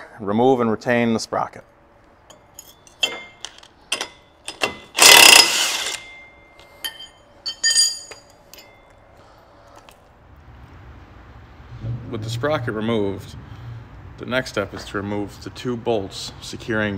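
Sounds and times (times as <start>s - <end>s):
wrenches clinking on metal: 2.3s - 9.0s
impact wrench hammering: 2.9s - 6.2s.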